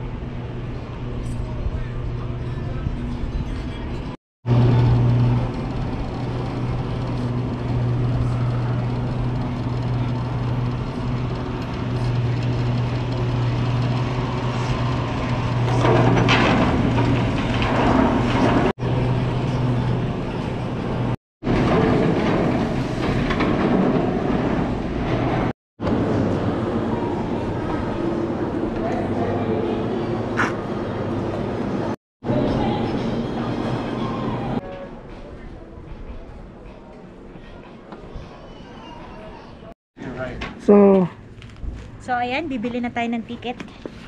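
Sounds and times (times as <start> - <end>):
vehicle engine and road noise: 0.0 - 34.6.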